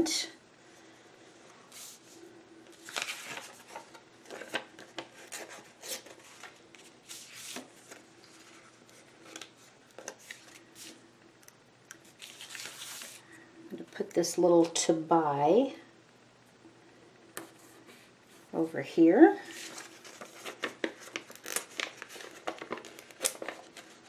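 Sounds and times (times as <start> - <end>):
paper rustling and crinkling: 1.7 - 11.0, 12.0 - 13.2, 19.4 - 24.0.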